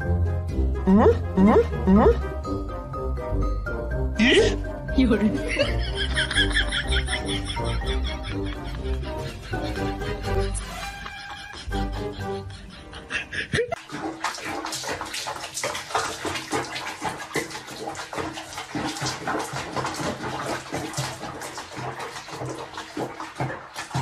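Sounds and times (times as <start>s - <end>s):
music: 0.0s - 13.6s
water splashing in a basin: 4.2s - 8.0s, 13.7s - 24.0s.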